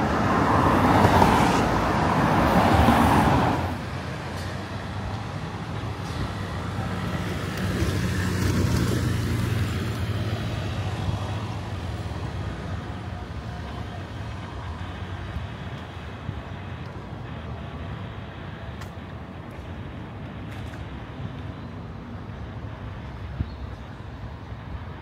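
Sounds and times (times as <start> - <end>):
motor vehicle passing: 0.0 - 15.0
low traffic noise: 0.0 - 25.0.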